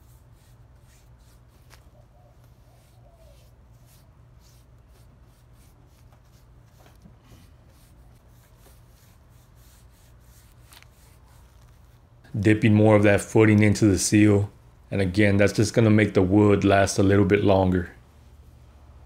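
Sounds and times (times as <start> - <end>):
paintbrush strokes on wood: 0.0 - 12.1.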